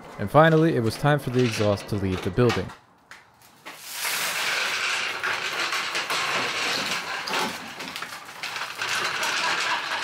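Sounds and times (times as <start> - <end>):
metal scraping and dragging: 3.8 - 10.0.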